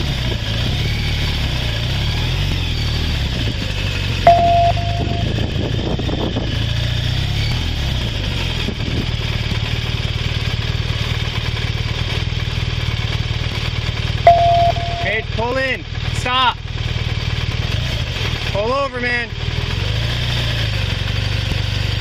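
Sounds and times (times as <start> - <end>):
motorcycle engine low rumble: 0.0 - 22.0
radio beep tone: 4.3 - 5.3, 14.3 - 15.3.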